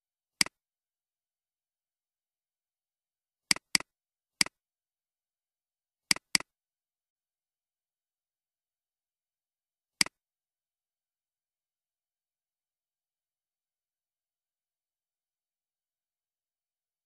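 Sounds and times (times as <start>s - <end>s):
computer mouse clicks: 3.5s - 4.6s, 6.1s - 6.5s.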